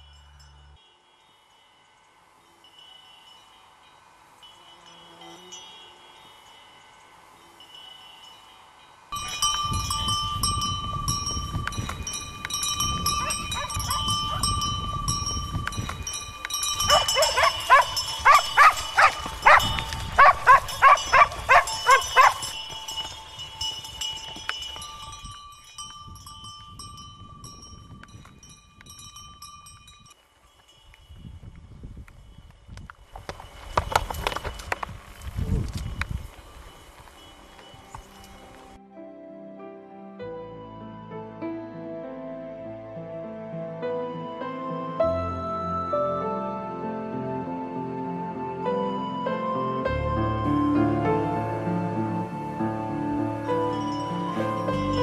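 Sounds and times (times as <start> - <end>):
high ringing tone: 0.0 - 31.3
animal bell clinking: 0.0 - 31.4, 35.6 - 38.6, 53.7 - 55.0
horses hooves thudding: 9.2 - 38.8.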